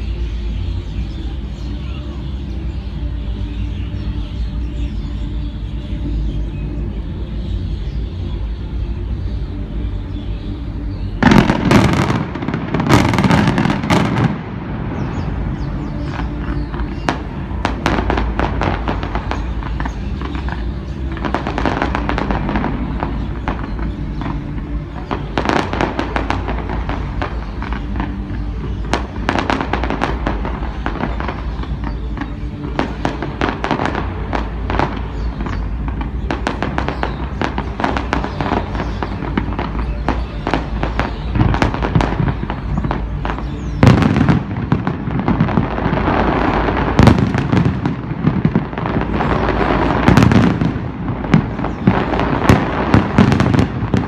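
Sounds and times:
fireworks pops and crackles: 11.2s - 14.5s, 16.1s - 54.0s
loud fireworks bangs: 11.2s - 54.0s.

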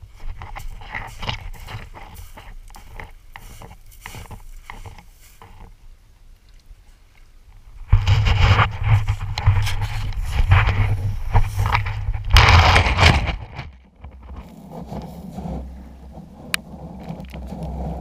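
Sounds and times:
pebbles crunching: 0.0s - 5.7s, 8.0s - 18.0s
camera handling rumble: 7.8s - 18.0s.

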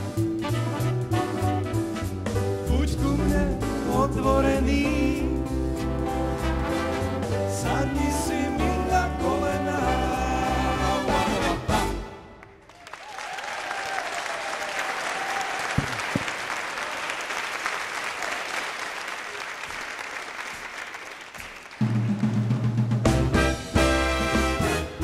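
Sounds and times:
swing big band playing: 0.0s - 12.3s, 21.8s - 25.0s
audience applauding: 12.4s - 22.7s.

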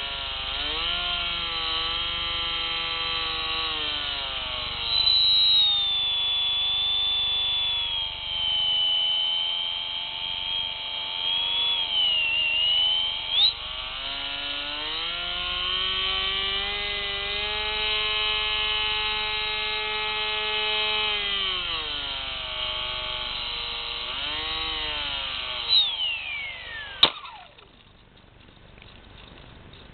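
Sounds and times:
drone propellers whining: 0.0s - 28.0s
drone landing knock: 27.0s - 27.4s.

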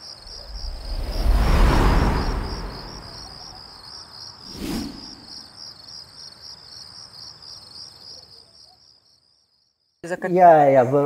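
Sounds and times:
insects chirping: 0.0s - 11.0s
deep rushing noise: 0.3s - 3.8s.

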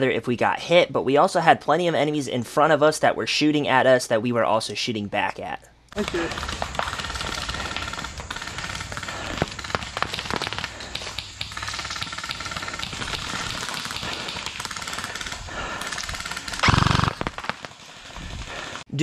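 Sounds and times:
airsoft guns firing bursts: 6.0s - 18.8s.

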